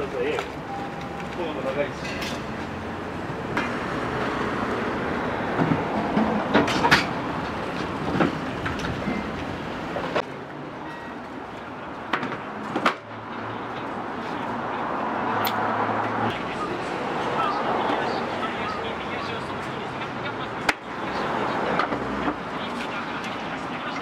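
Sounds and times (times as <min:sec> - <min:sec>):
background stall noise: 0:00.0 - 0:24.0.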